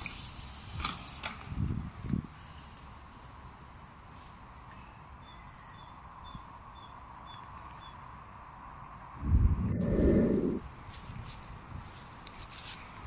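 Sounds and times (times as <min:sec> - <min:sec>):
bird chirping: 0:02.6 - 0:10.6
loud low rumble: 0:09.2 - 0:10.6.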